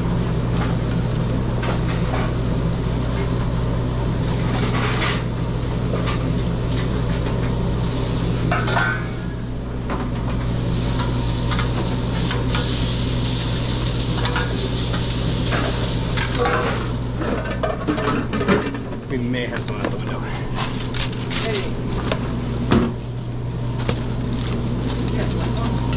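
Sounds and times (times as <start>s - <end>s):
steady low hum: 0.0s - 25.9s
sausages and onions sizzling: 4.0s - 17.2s.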